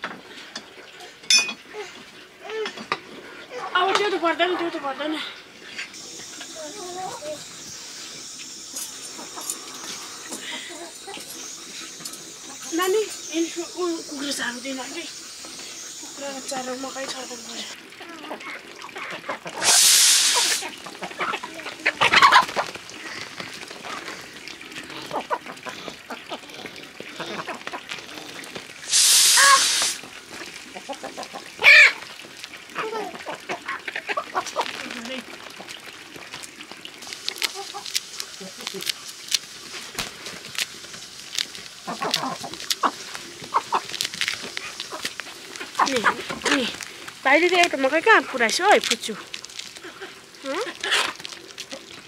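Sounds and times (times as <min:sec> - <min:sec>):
chickens clucking: 0:05.9 - 0:24.1, 0:25.0 - 0:28.0, 0:28.8 - 0:32.1, 0:32.7 - 0:34.8, 0:37.0 - 0:40.4, 0:41.3 - 0:48.9
loud hiss: 0:06.0 - 0:17.8, 0:19.6 - 0:20.7, 0:28.8 - 0:30.0
chicken squawk: 0:19.1 - 0:22.6, 0:28.9 - 0:29.9, 0:30.8 - 0:32.0.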